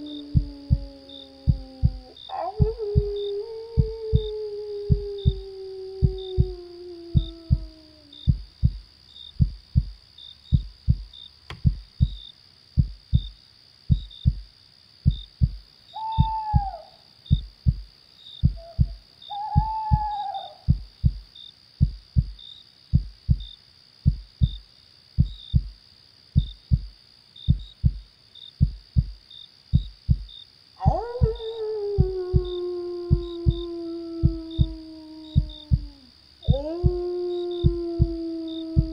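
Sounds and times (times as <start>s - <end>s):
heartbeat thumps: 0.0s - 15.6s, 16.2s - 24.6s, 25.2s - 25.8s, 26.4s - 38.9s
crickets chirping: 0.0s - 38.9s
owl hooting: 16.0s - 17.0s, 18.6s - 20.8s.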